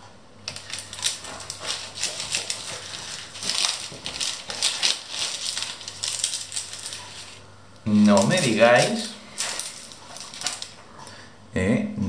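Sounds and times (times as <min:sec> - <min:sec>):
pastry crust crackling: 0:00.4 - 0:11.0
knife sawing through pastry: 0:00.7 - 0:07.4.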